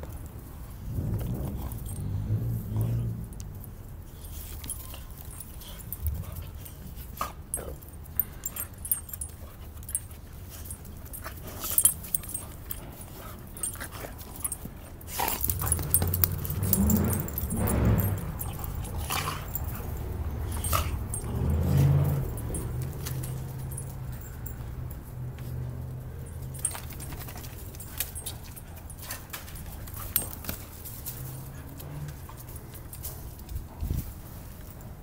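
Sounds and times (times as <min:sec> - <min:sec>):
dogs growling and yipping: 0:00.8 - 0:03.7, 0:04.3 - 0:24.5
dogs scuffling: 0:04.1 - 0:35.0.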